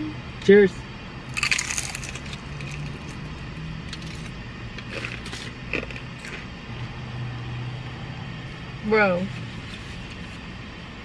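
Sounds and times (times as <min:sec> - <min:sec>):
car low hum: 0:00.0 - 0:11.0
crispy taco shells crunching: 0:01.3 - 0:03.2, 0:03.9 - 0:06.5.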